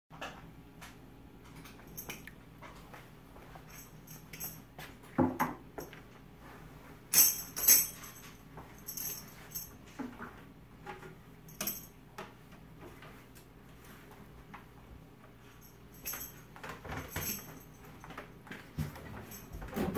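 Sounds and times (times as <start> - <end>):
light metallic jingling: 1.6 - 2.3, 3.5 - 4.8, 7.1 - 10.0, 11.5 - 12.0, 15.4 - 19.8.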